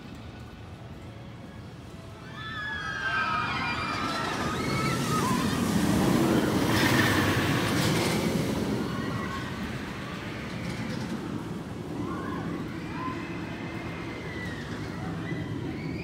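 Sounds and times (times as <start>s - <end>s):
roller coaster train rumbling: 0.0s - 16.0s
riders screaming: 2.2s - 7.1s, 11.9s - 16.0s.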